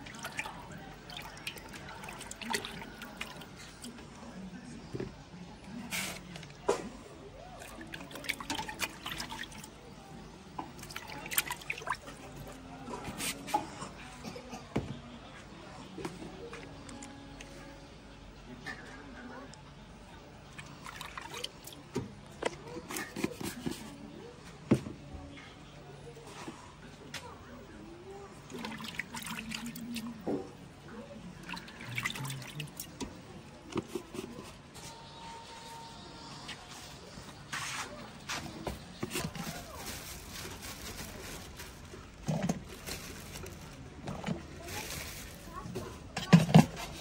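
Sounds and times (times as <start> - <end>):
water sloshing and dripping: 0.0 - 4.0, 7.5 - 9.8, 10.6 - 12.6, 20.4 - 23.5, 28.4 - 30.6, 31.4 - 33.2
liquid dripping and splashing: 10.8 - 12.2.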